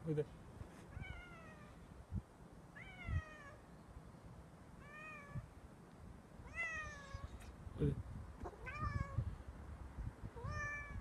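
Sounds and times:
cat meowing: 0.9 - 1.8, 2.8 - 3.6, 4.8 - 5.4, 6.4 - 7.4, 8.4 - 9.2, 10.4 - 11.0.

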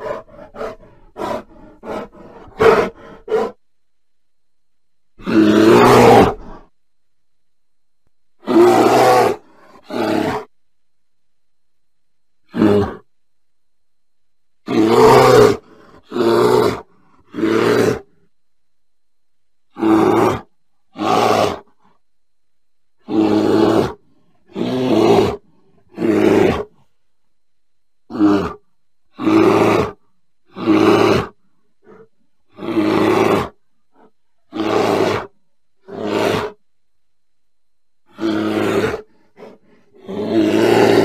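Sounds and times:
bear calling: 0.0 - 3.6, 5.2 - 6.7, 28.1 - 36.6.

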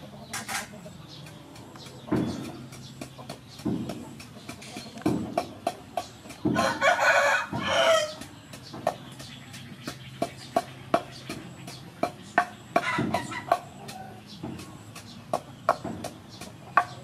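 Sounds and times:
wooden pestle pounding in mortar: 1.2 - 17.0
rooster crowing: 6.5 - 8.2.

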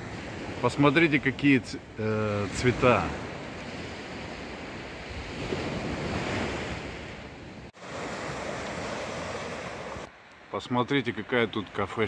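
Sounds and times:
waves breaking on a beach: 0.0 - 12.0.

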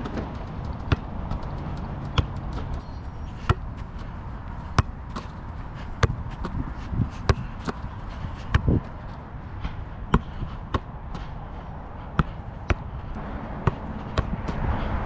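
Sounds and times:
ball kicked and caught thuds: 0.0 - 2.8, 3.4 - 5.4, 6.0 - 9.0, 10.1 - 11.3, 12.0 - 13.0, 13.6 - 14.6.

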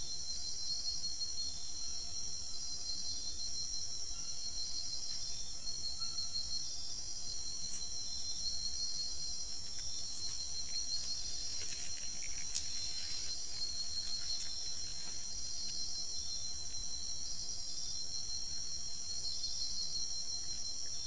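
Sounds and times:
insects trilling: 0.0 - 21.0
faint clicks and scrapes: 11.5 - 15.2.

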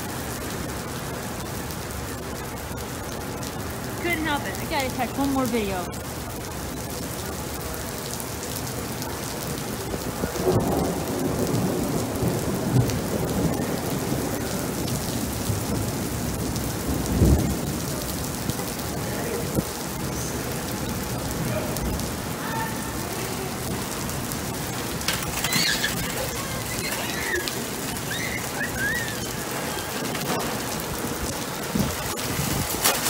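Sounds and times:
rain falling on pavement: 0.0 - 33.0
rolling thunder: 9.6 - 33.0
thunderclap: 9.8 - 18.6, 23.6 - 33.0.

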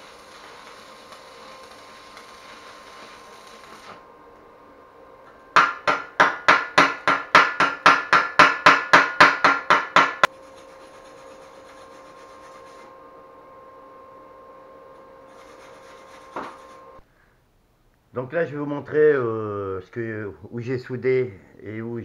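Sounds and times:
welding arc crackling and hissing: 0.0 - 4.1, 10.0 - 12.9, 15.2 - 17.0
hammer striking steel: 5.6 - 10.3.

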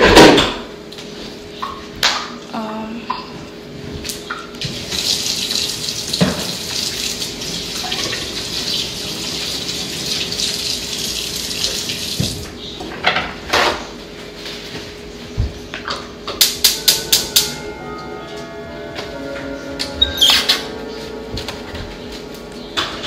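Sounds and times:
tap running water into sink: 4.6 - 12.5.

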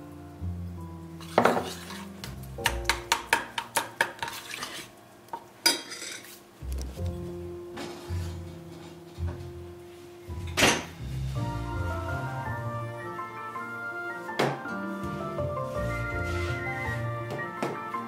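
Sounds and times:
spoon scraping saucepan: 1.2 - 2.2, 4.0 - 4.9.

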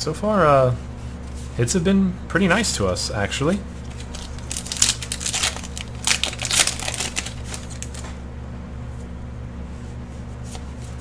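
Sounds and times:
steady low hum: 0.0 - 11.0
foil wrapper crinkling and tearing: 3.8 - 8.1
handling of trading cards: 3.8 - 8.2.

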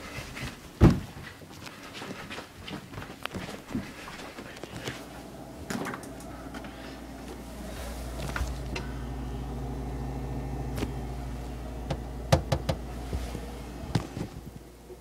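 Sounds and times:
refrigerator hum: 4.4 - 15.0.

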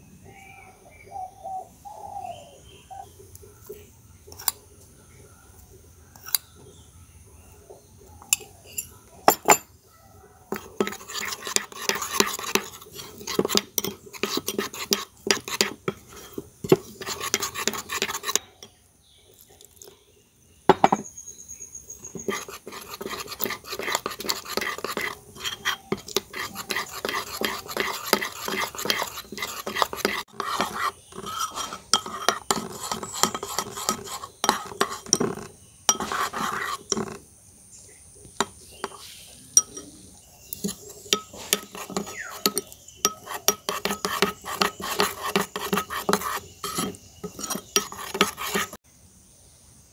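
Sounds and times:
spoon scraping ceramic bowl: 4.3 - 4.6, 8.3 - 9.7, 10.5 - 18.8, 20.7 - 21.1, 22.0 - 37.2, 38.4 - 48.8.

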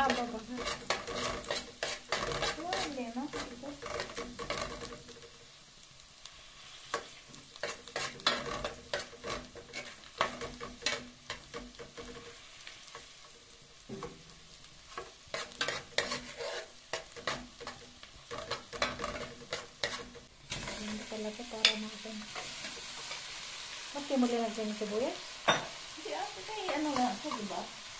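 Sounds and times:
metal spoon scraping a pot: 0.0 - 5.2, 6.8 - 13.0, 14.9 - 23.3
butter sizzling: 0.0 - 27.9.

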